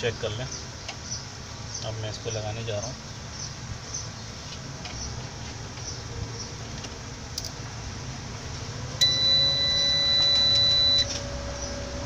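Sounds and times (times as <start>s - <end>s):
low background hum: 0.0s - 12.0s
steady high beep: 9.0s - 11.1s.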